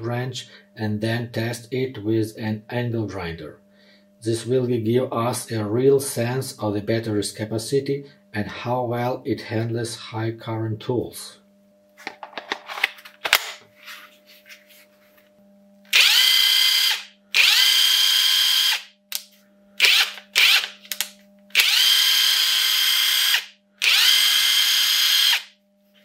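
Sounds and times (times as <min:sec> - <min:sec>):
impact wrench motor whine: 0:15.8 - 0:25.6.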